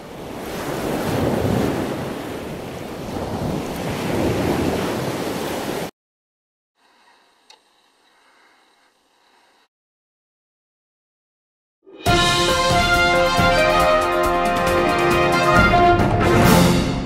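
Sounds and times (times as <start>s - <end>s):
ocean water rushing: 0.0s - 5.9s.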